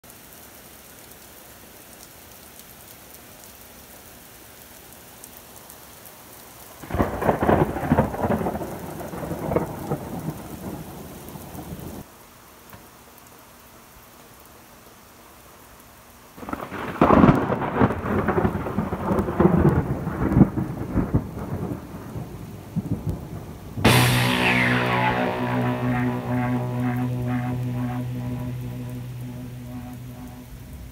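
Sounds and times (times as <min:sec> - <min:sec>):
steady rain falling: 0:00.0 - 0:30.9
thunder rumbling with sharp cracks: 0:06.8 - 0:12.0, 0:16.4 - 0:30.9
music with steady low tone: 0:23.9 - 0:30.9.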